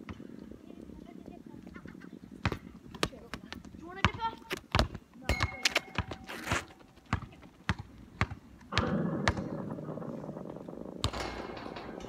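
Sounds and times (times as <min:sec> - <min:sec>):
basketball bouncing: 0:04.0 - 0:06.3, 0:06.9 - 0:12.0.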